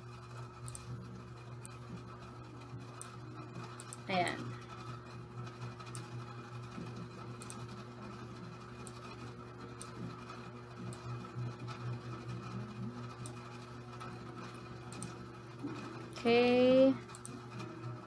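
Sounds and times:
low electrical hum: 0.0s - 18.0s
computer mouse clicks: 0.6s - 0.9s, 7.4s - 7.6s, 10.9s - 11.1s, 14.9s - 15.2s, 17.1s - 17.4s.

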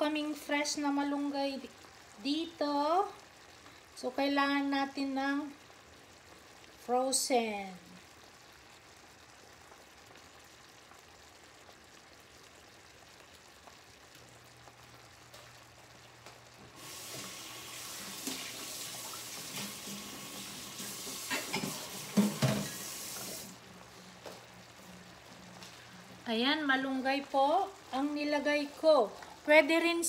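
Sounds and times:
kitchen tap running: 16.7s - 23.6s.

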